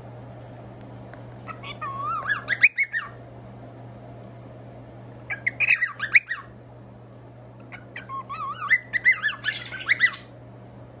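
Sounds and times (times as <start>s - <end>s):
parrots chirping and warbling: 1.4s - 3.2s, 5.2s - 6.6s, 7.6s - 10.4s
harsh bird chatter: 7.7s - 10.3s.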